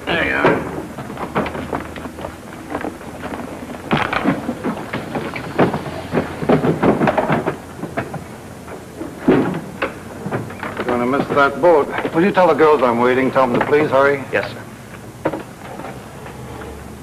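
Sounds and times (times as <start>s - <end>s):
suitcases and boxes thumping: 0.0s - 12.6s.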